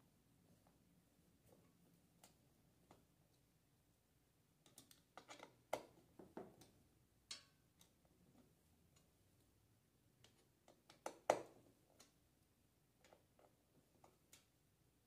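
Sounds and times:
screwdriver clicks and taps: 10.2s - 12.2s.

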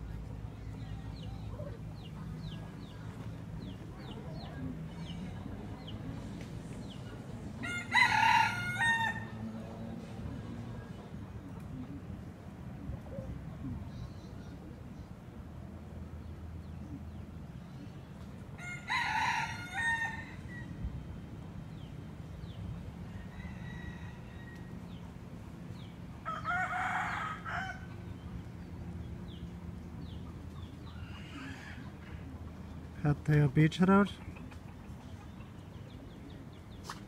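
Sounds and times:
rooster crowing: 7.6s - 9.5s, 18.6s - 20.7s, 23.1s - 24.7s, 26.2s - 27.9s.

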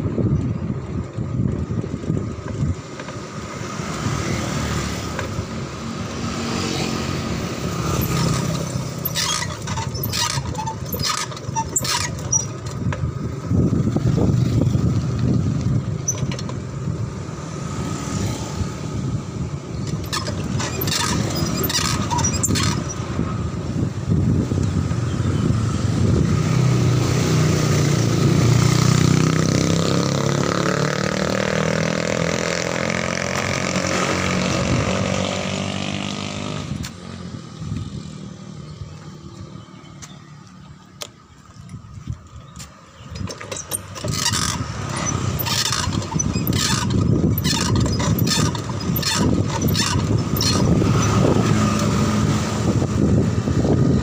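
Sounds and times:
wind noise: 0.0s - 6.4s, 7.1s - 30.2s, 31.2s - 39.6s, 41.3s - 54.0s
street traffic: 0.0s - 54.0s
motorcycles passing: 0.1s - 54.0s
motorcycle engine revving: 1.6s - 39.6s, 43.5s - 54.0s
sharp clicks and rattles: 7.8s - 13.2s, 14.3s - 16.7s, 19.7s - 23.2s, 42.6s - 51.9s.

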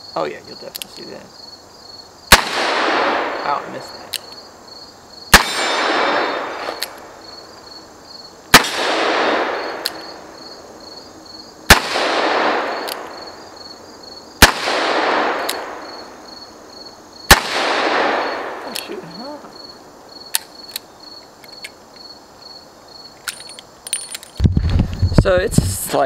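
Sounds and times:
revolver shots with echo: 2.3s - 3.6s, 5.3s - 6.8s, 8.5s - 9.9s, 14.4s - 15.9s, 17.3s - 18.7s.

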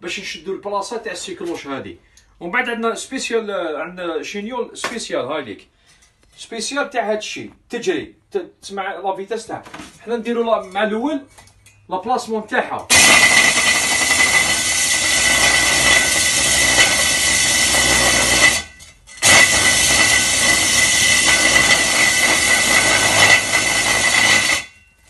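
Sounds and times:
hammer drill whining: 12.9s - 25.0s.

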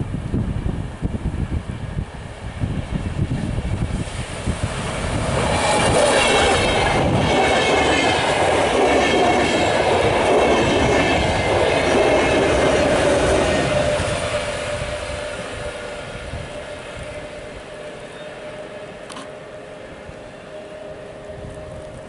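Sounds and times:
train wheels clattering on rails: 4.0s - 16.0s.

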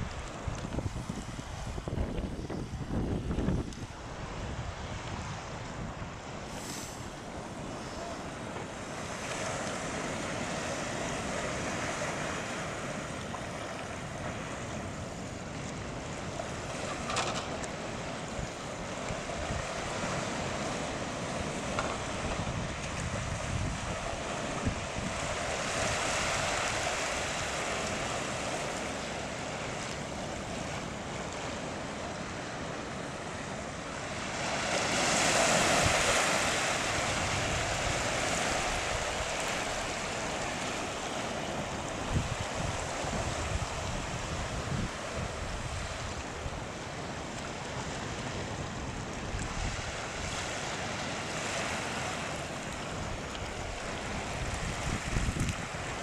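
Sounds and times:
sea surf breaking on rocks: 0.0s - 56.0s
wind gusting on microphone: 0.0s - 56.0s.

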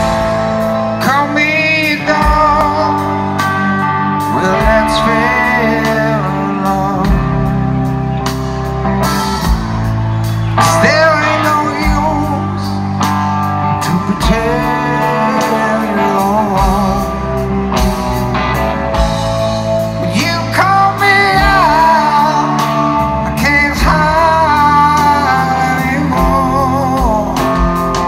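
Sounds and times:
electric guitars: 0.0s - 28.0s
male singer holding long notes: 0.8s - 8.0s, 10.6s - 13.0s, 13.7s - 17.7s, 19.8s - 28.0s.

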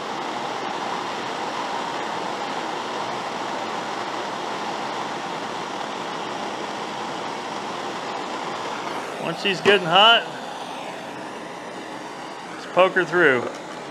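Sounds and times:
propane torch flame hissing: 0.0s - 13.9s.

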